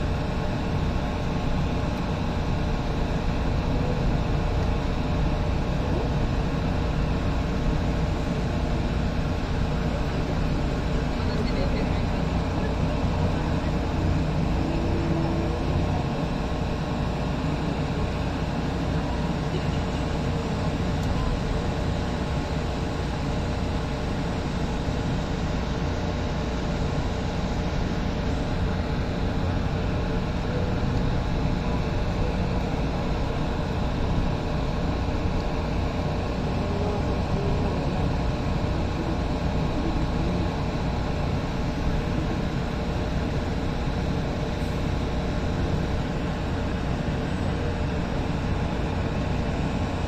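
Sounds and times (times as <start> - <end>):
light-rail train rumbling: 0.0 - 50.0.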